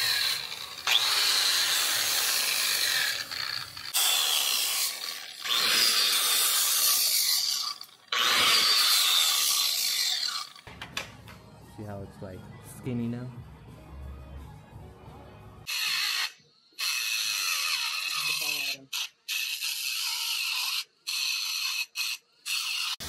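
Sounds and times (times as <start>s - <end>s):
angle grinder grinding metal: 0.0s - 10.7s, 15.7s - 23.0s.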